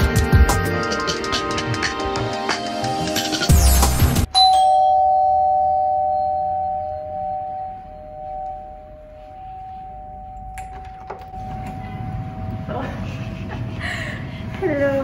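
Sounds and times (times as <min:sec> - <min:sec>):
doorbell chiming: 0:04.3 - 0:13.1.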